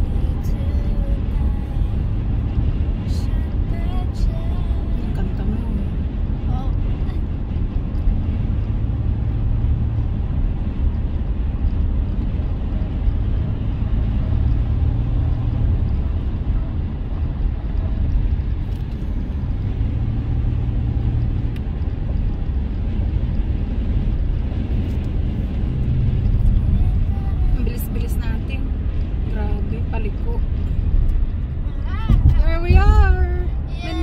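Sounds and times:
car interior road rumble: 0:00.0 - 0:34.0.

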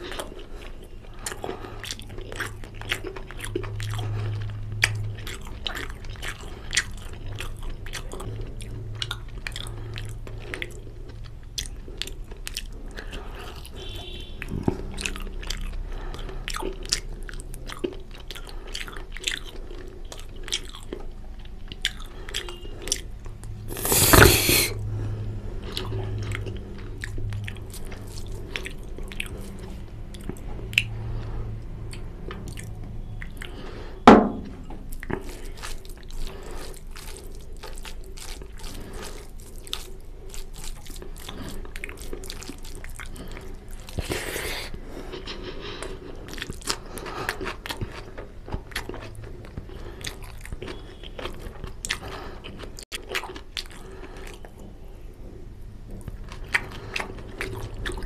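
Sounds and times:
wet chewing: 0:00.0 - 0:25.0, 0:25.6 - 0:58.0
mouth clicks and smacks: 0:23.7 - 0:24.8
sharp knock: 0:34.1 - 0:34.6.

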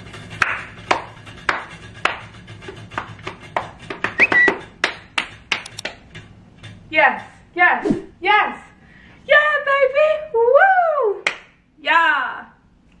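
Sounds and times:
short high chirp: 0:04.2 - 0:04.5.

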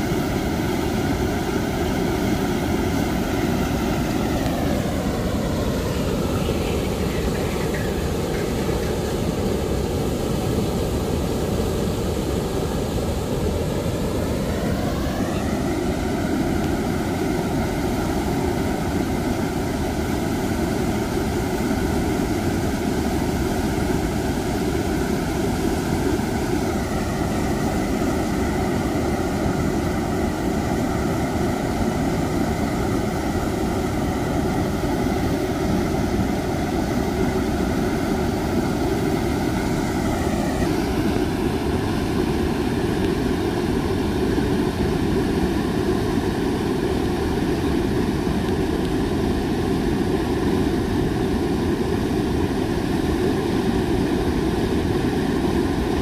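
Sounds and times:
motor whine: 0:12.7 - 0:21.4, 0:35.5 - 0:45.4.

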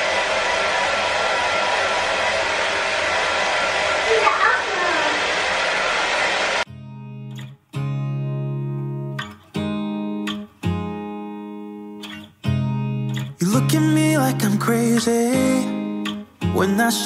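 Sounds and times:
hair dryer blowing: 0:00.0 - 0:06.7
acoustic guitar strumming chords: 0:06.7 - 0:17.0.

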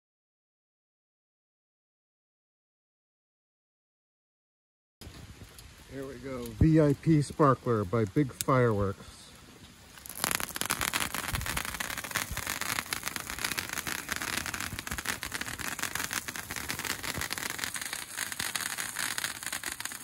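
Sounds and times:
sparkler hissing and crackling: 0:09.9 - 0:20.0.

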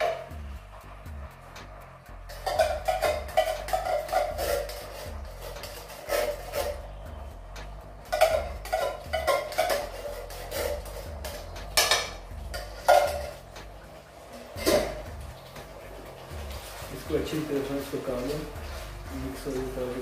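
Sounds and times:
tin can knocking against skillet: 0:02.3 - 0:04.9, 0:08.1 - 0:13.4, 0:14.6 - 0:15.0.

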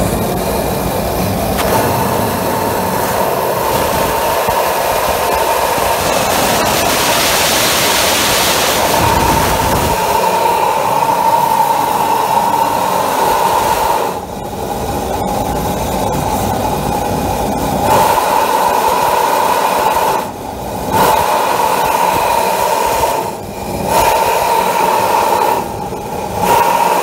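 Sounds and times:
forge burner roaring: 0:00.0 - 0:27.0.

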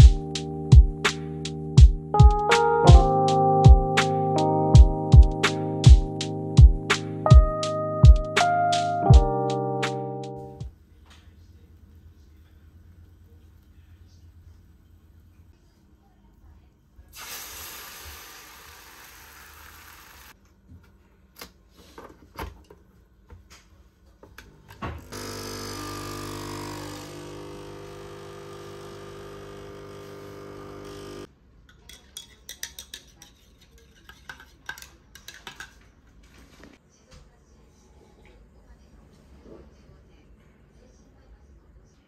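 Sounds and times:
steady hiss: 0:17.2 - 0:20.4
small electric appliance humming: 0:24.9 - 0:31.3
dishes and utensils clinking: 0:31.7 - 0:35.8.

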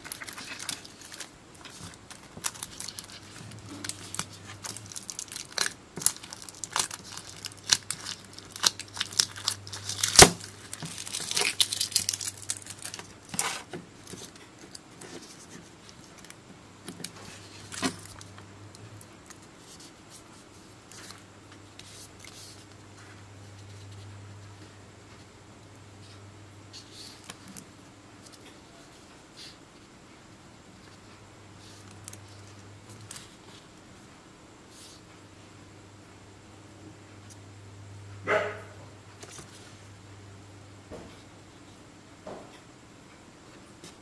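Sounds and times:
tape tearing: 0:00.0 - 0:14.3
foil pouch crinkling: 0:00.0 - 0:16.4.

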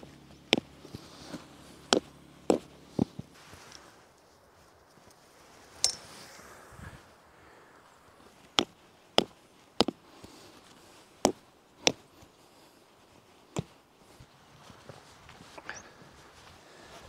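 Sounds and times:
stone hammering metal tent peg: 0:05.8 - 0:06.1.

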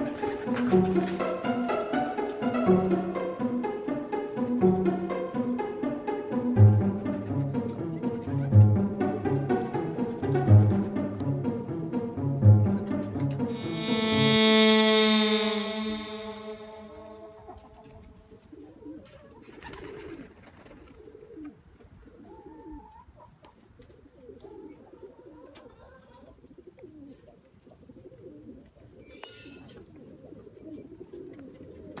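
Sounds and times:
chickens clucking softly: 0:21.0 - 0:32.0.

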